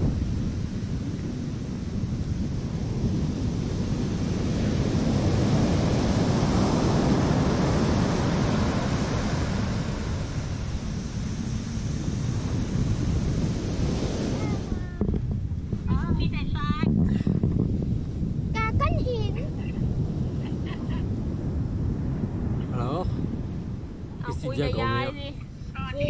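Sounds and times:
ocean surf breaking: 0.0 - 16.6
wind buffeting microphone: 0.0 - 26.0.

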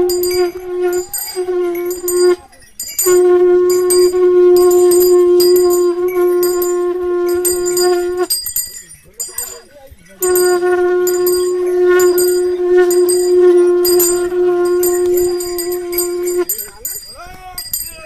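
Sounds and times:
horn blown on one note: 0.0 - 8.4, 10.2 - 16.7
small bells jingling: 0.0 - 18.0.

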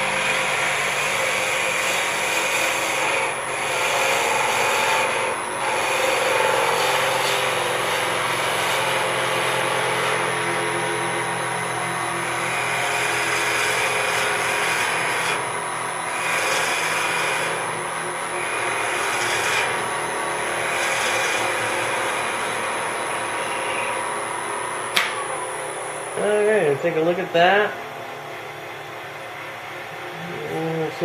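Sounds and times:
tool scraping spinning wood: 0.0 - 27.6
lathe motor whine: 0.0 - 31.0
switch click: 24.9 - 25.2.

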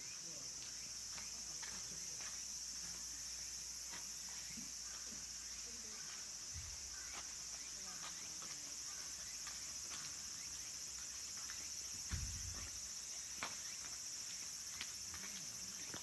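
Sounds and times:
cicadas droning: 0.0 - 16.0.

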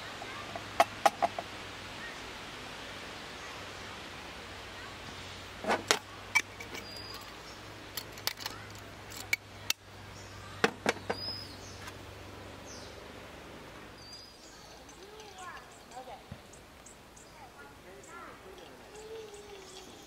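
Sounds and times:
outdoor background: 0.0 - 20.0
high bird chirps: 14.0 - 20.0.

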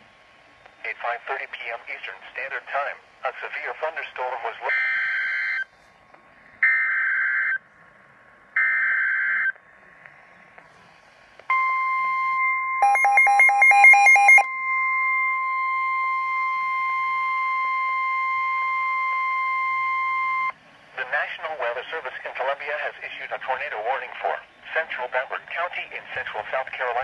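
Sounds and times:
rapid radio alert beeps: 3.3 - 5.7, 11.5 - 23.6
steady warning alarm tone: 11.5 - 20.6.

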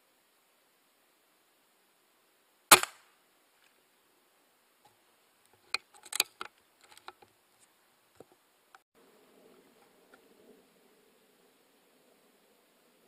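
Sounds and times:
air rifle shot: 2.7 - 3.1.

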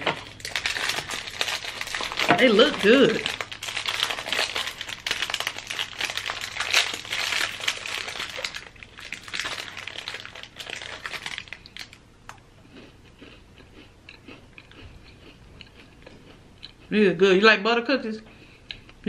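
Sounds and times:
plastic wrapper crinkling: 0.0 - 12.0.

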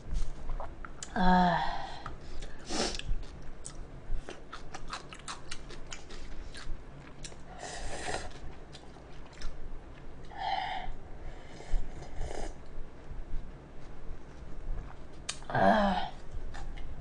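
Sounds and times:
close-miked wet chewing: 2.4 - 7.5, 8.1 - 10.3.

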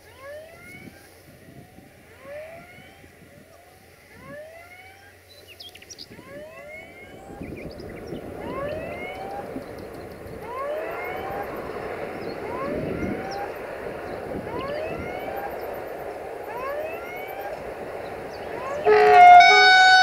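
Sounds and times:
rails singing with rising whines: 0.0 - 20.0
birds chirping: 4.8 - 20.0.

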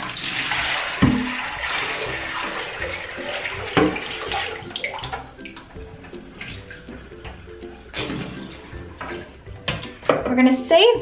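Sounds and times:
water pouring into a sink: 0.0 - 5.7.

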